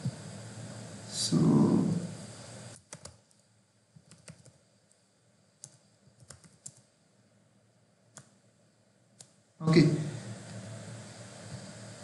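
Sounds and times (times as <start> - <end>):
faint keystrokes on keyboard: 2.8 - 5.0, 5.6 - 6.9, 8.1 - 8.4.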